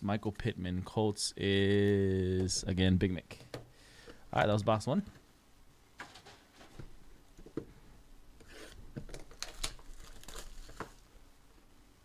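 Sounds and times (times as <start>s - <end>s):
plastic wrapping crinkling and tearing: 9.1s - 11.1s.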